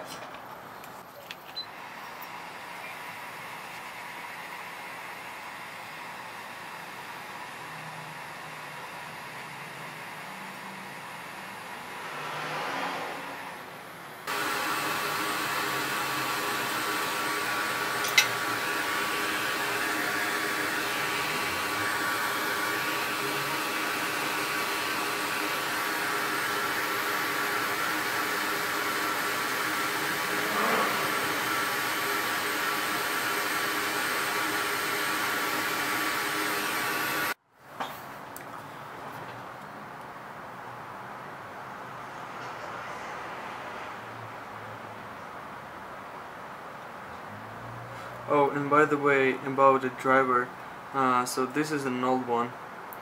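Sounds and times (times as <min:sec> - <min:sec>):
hot air station blowing hiss: 0:14.2 - 0:37.4.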